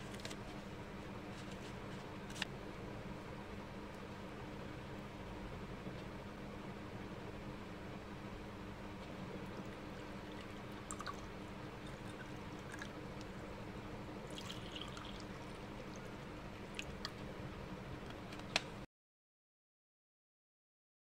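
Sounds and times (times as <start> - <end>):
steady low hum: 0.0 - 18.9
water pouring into a glass: 10.3 - 13.0, 14.2 - 15.4.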